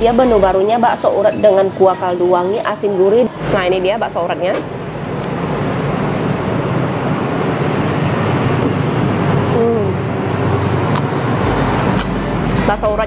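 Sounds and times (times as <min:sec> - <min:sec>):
hum and hiss: 0:11.4 - 0:13.0.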